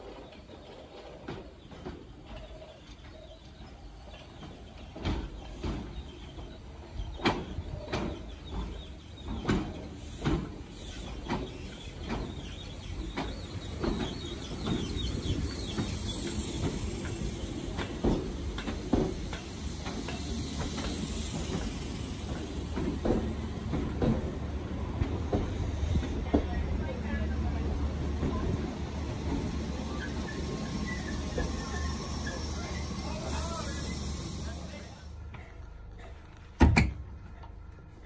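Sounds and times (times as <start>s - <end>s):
train rumble: 0.0s - 38.0s
train wheels knocking over rail joints: 11.2s - 26.8s.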